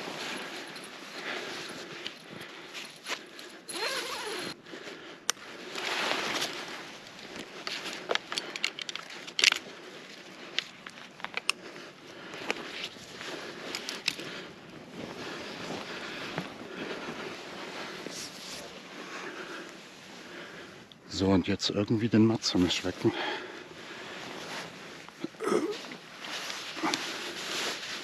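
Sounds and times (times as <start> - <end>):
fabric rustling and scraping: 5.6 - 8.1, 14.7 - 20.3, 23.8 - 28.0
climbing gear clicks and knocks: 7.3 - 11.6, 13.6 - 14.3.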